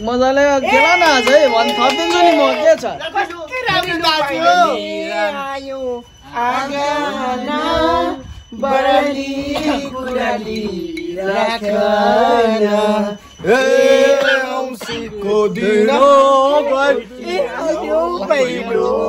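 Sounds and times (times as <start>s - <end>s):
group singing chant-like phrases: 4.0s - 19.0s.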